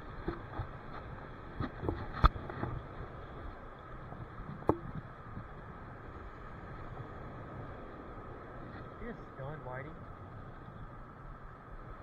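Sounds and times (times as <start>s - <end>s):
wind on microphone: 0.0s - 9.2s.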